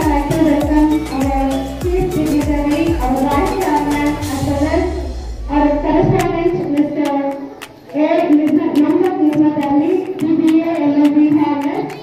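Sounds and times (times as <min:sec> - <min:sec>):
high voice singing: 0:00.0 - 0:06.7.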